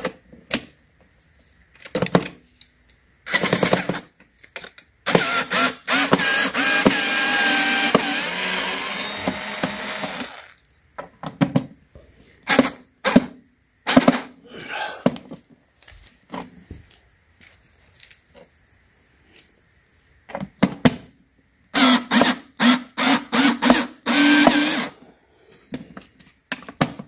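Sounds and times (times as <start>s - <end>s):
cordless screwdriver whirring: 5.1s - 10.6s, 21.8s - 24.9s.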